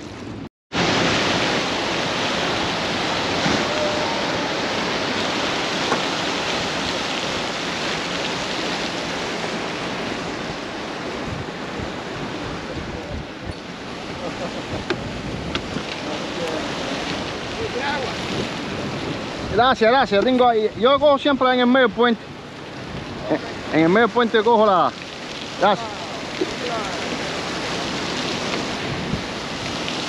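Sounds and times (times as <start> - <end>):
ocean surf: 0.0 - 30.0
wind: 0.0 - 30.0.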